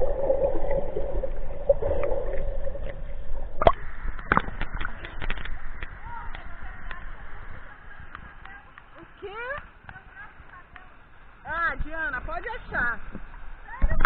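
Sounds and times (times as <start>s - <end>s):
water gurgling and sloshing: 0.0s - 9.8s.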